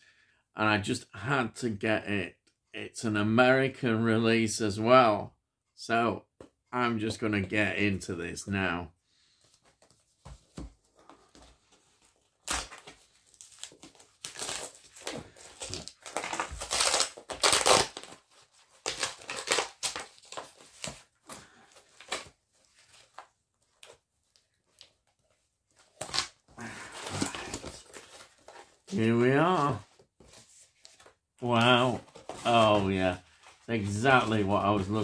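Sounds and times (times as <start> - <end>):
cardboard tearing and crumpling: 12.2 - 23.2, 25.8 - 35.0.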